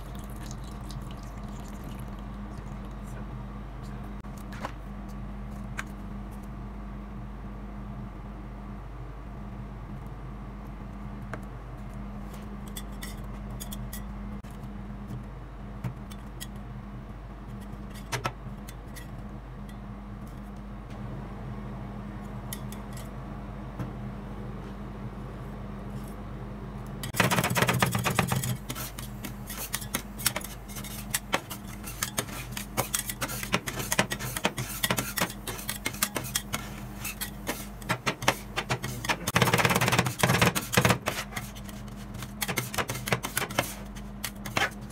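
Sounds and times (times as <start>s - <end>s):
steady low hum: 0.0s - 44.9s.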